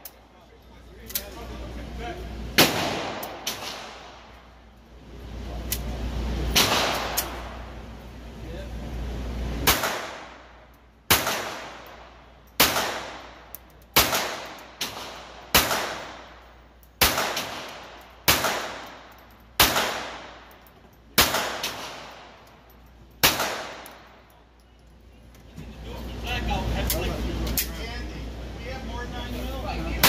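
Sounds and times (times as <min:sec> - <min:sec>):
pistol shots: 0:02.6 - 0:04.3, 0:06.5 - 0:07.5, 0:09.6 - 0:16.4, 0:17.0 - 0:20.5, 0:21.2 - 0:22.4, 0:23.2 - 0:24.2.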